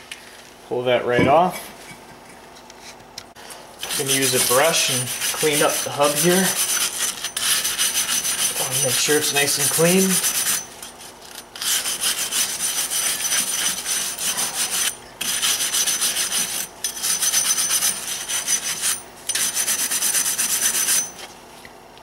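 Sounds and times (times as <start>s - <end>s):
brush scrubbing metal: 3.8s - 21.3s.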